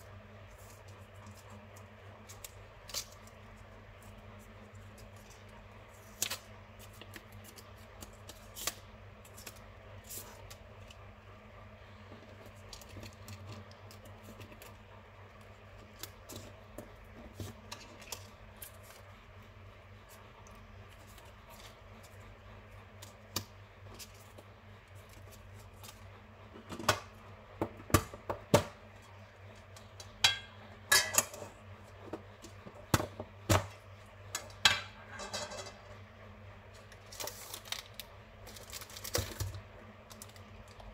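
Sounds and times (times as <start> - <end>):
low steady hum: 0.0 - 40.9
cardboard and paper rustling: 36.7 - 40.9
sachets crinkling and tins clicking: 36.8 - 40.9.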